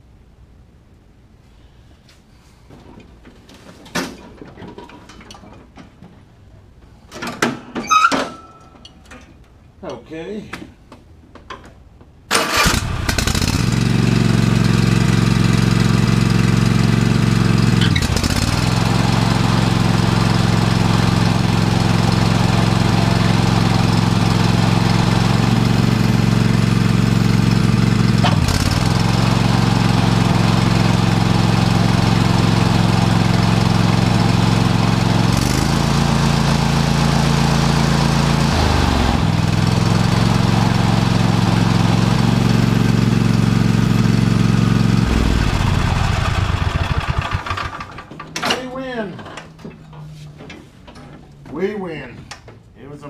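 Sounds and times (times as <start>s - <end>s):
riding mower engine running: 12.3s - 48.4s.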